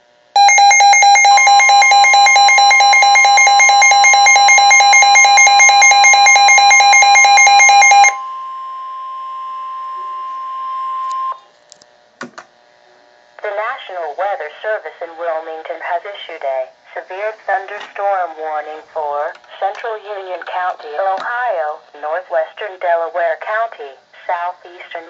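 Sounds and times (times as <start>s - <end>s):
warbling electronic siren: 0.4s - 11.4s
radio click: 19.2s - 21.4s.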